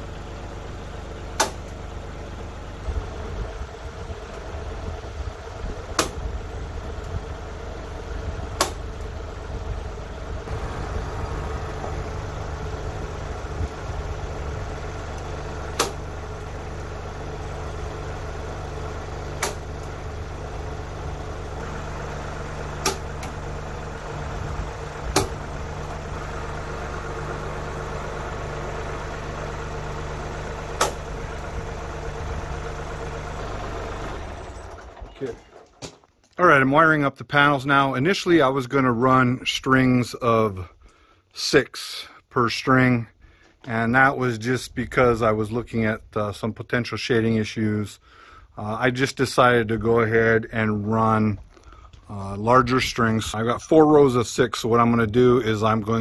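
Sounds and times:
tractor engine idling: 0:00.0 - 0:56.0
sharp clicks: 0:08.6 - 0:09.1, 0:15.2 - 0:16.0, 0:19.4 - 0:19.9, 0:22.8 - 0:23.4, 0:25.1 - 0:25.4, 0:30.8 - 0:31.0.

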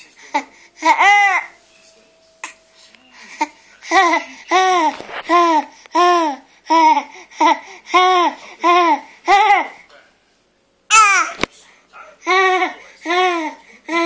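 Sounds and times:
baby laughing: 0:10.9 - 0:11.4.

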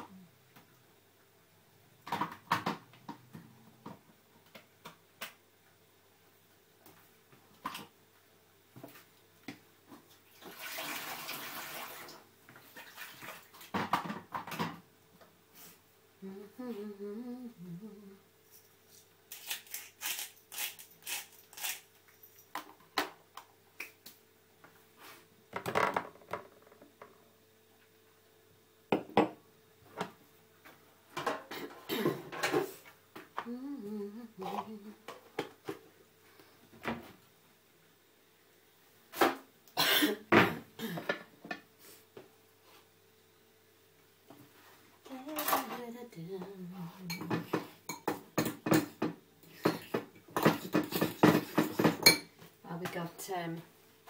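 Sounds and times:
person humming: 0:16.2 - 0:18.3, 0:33.4 - 0:35.1, 0:46.0 - 0:47.2
plates and pans clattering: 0:47.1 - 0:52.3.

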